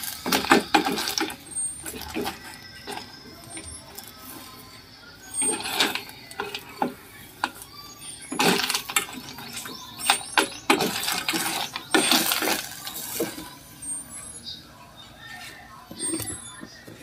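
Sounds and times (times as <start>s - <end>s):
snail shells clattering in metal pot: 0.0s - 4.5s, 5.2s - 14.1s.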